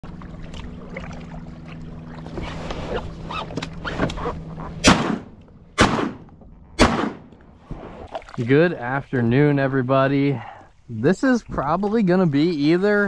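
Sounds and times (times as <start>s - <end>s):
shotgun shots: 4.8s - 7.4s.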